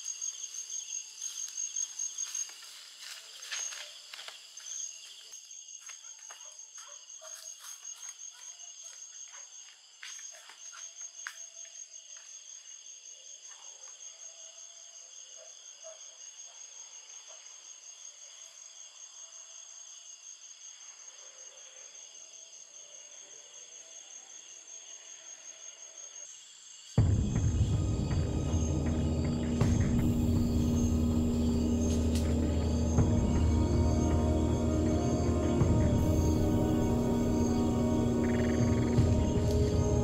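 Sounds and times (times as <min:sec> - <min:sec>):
footsteps on dry leaves: 0:00.0 - 0:06.0
night insects trilling: 0:00.0 - 0:40.0
high fast-pulsing insect trill: 0:27.0 - 0:40.0.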